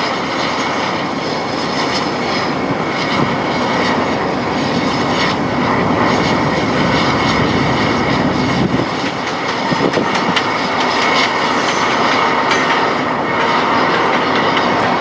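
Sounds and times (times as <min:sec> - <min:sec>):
diesel locomotive running: 0:00.0 - 0:15.0
wheels clicking over rail joints: 0:08.8 - 0:15.0.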